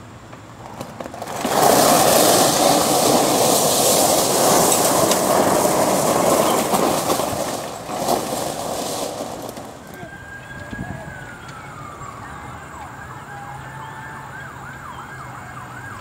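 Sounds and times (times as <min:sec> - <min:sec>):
electric golf cart rushing noise: 0:00.0 - 0:16.0.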